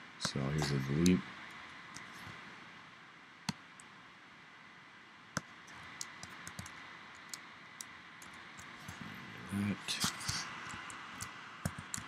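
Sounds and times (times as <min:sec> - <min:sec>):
faint steady hiss: 0:00.0 - 0:12.0
mouse and keyboard clicks: 0:05.4 - 0:09.0, 0:10.0 - 0:12.0.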